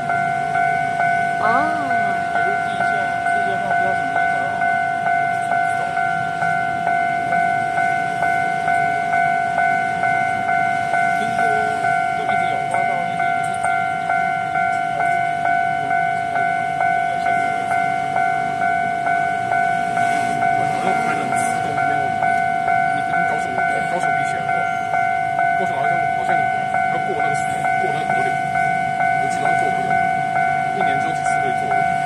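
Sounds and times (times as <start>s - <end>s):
level crossing warning bell: 0.0s - 32.0s.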